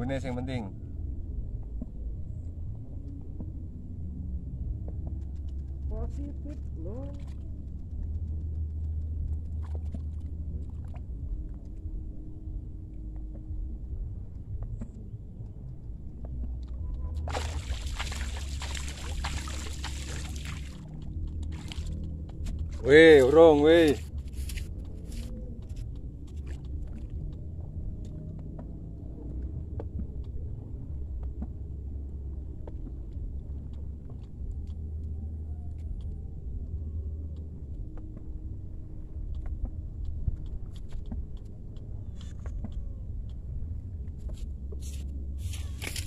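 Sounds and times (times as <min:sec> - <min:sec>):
steady low rumble: 0:00.0 - 0:46.0.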